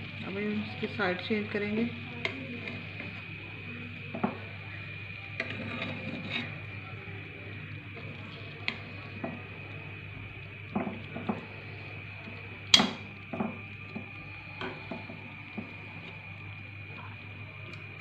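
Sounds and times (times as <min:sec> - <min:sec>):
steady low hum: 0:00.0 - 0:18.0
metal spatula scraping frying pan: 0:05.4 - 0:06.6.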